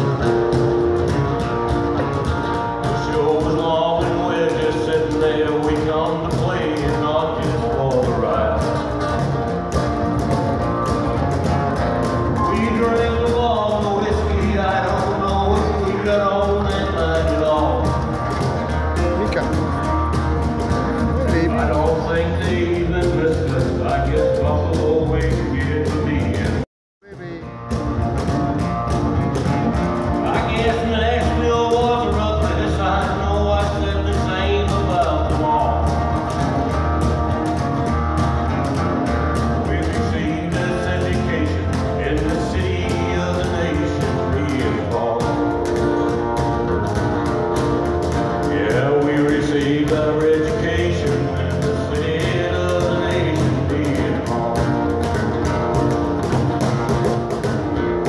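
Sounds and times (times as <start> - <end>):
bass line: 0.0 - 58.0
guitar: 0.0 - 58.0
person singing: 2.8 - 9.0, 21.0 - 27.5, 48.4 - 55.1.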